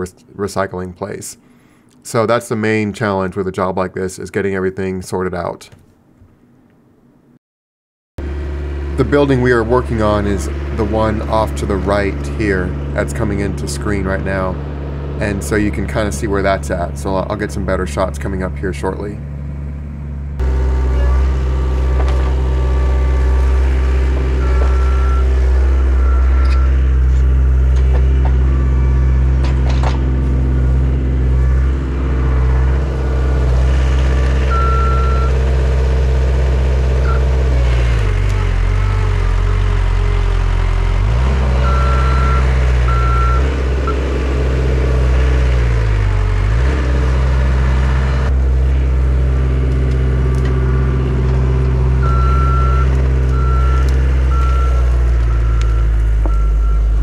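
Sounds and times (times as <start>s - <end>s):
diesel engine bogging under load: 8.2s - 57.0s
backup alarm beeping: 24.2s - 29.4s, 30.0s - 32.4s, 34.5s - 35.4s, 41.6s - 44.0s, 52.0s - 57.0s.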